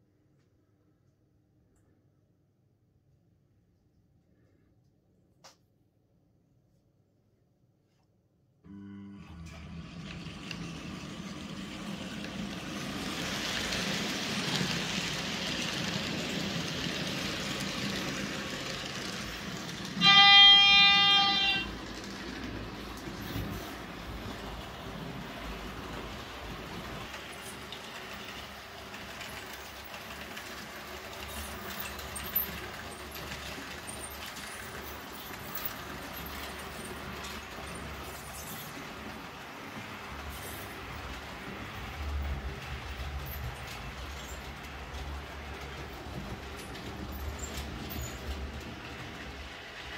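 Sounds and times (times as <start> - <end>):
model train horn: 8.7 - 10.0, 19.9 - 21.8
model train rolling on track: 8.7 - 49.9.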